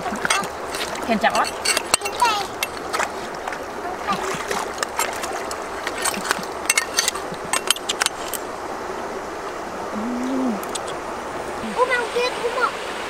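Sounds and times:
water splashing and running: 0.0s - 13.0s.

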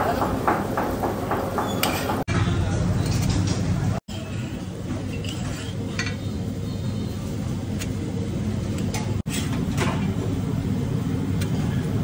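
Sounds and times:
busy kitchen rumble: 0.0s - 12.0s
metal spatula scraping griddle: 5.1s - 6.0s, 9.2s - 9.6s.

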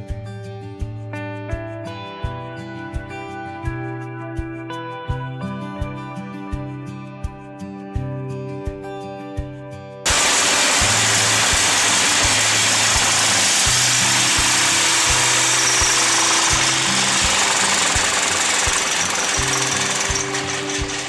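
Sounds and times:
background music with steady beat: 0.0s - 21.0s
loud steady machine noise: 10.1s - 21.0s.

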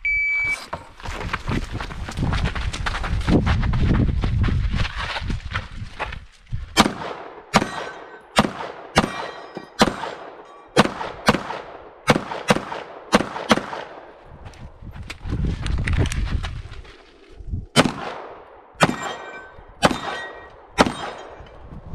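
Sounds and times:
pistol shots with ringing echo: 6.8s - 14.2s, 17.8s - 21.5s.

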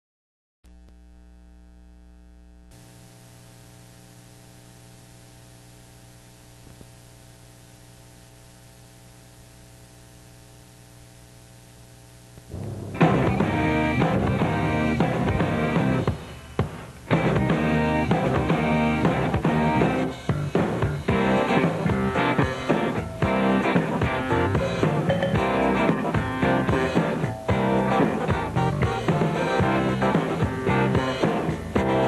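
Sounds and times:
electrical hum: 0.7s - 28.7s
rock band playing: 12.5s - 32.0s.

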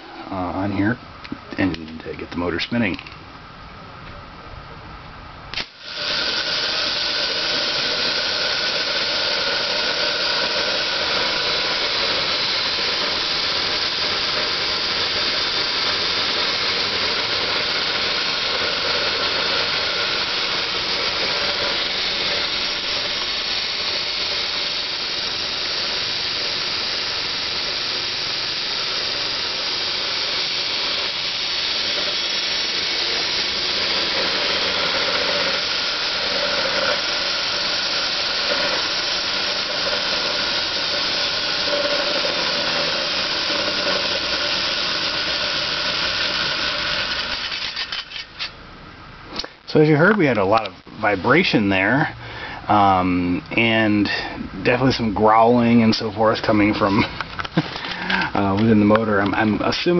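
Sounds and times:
electric motor whirring: 5.5s - 48.6s.

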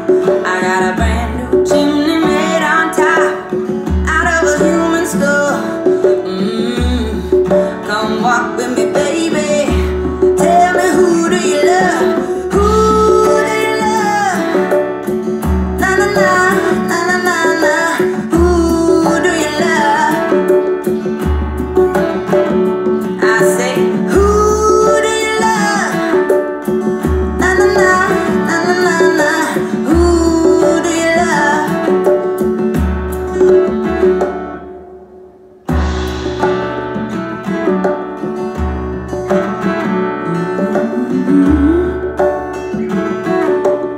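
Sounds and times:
rock song through speakers: 35.6s - 43.9s.

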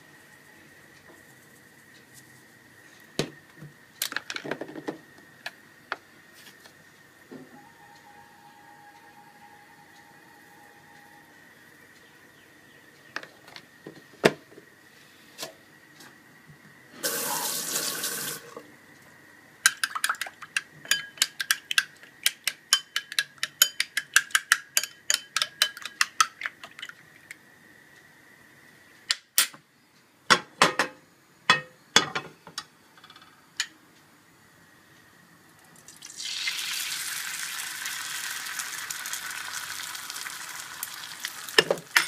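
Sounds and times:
fork beating eggs in bowl: 19.7s - 26.9s.

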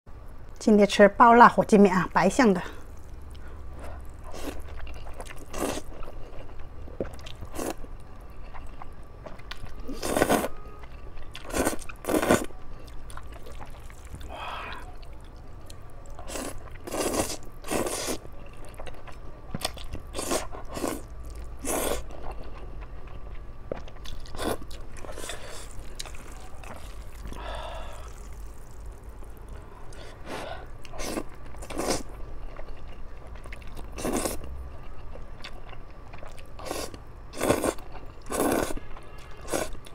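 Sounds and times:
person chewing: 2.8s - 39.9s
person slurping noodles: 16.3s - 18.2s.

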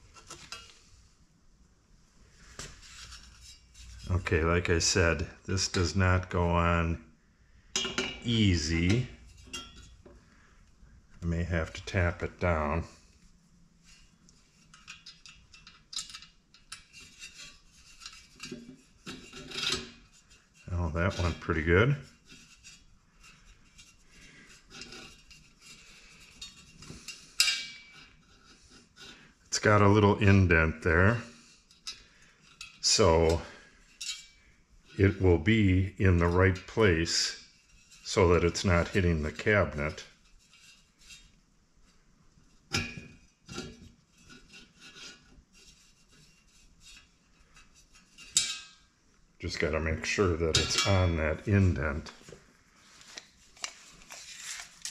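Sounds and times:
faint metallic clinks: 9.3s - 10.0s, 31.7s - 34.5s
metal clicks and rubbing: 13.9s - 29.2s, 53.0s - 54.9s.

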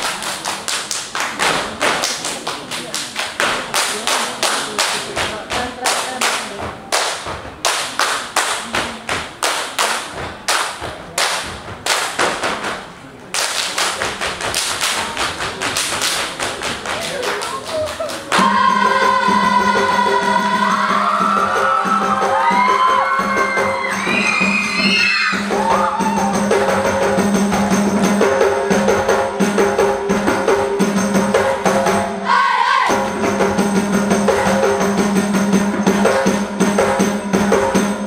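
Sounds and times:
group clapping and body slapping: 0.0s - 18.5s.

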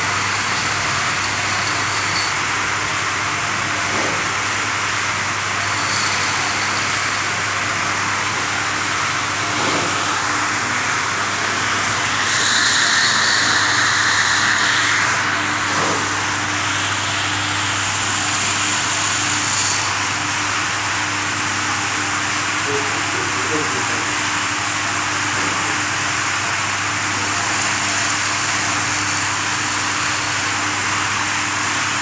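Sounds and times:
motor hum: 0.0s - 24.1s.

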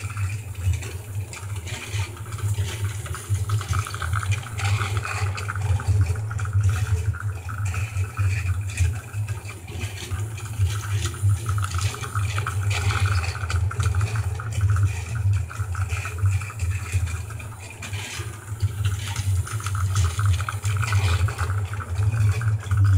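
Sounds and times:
gears and wheels rattling: 0.0s - 22.9s
toy train motor whirring: 15.7s - 22.9s.

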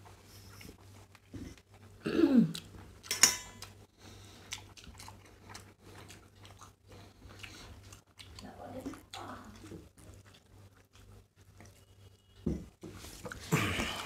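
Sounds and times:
rice mixed and chewed: 0.0s - 14.0s
tableware clink: 3.1s - 3.6s.

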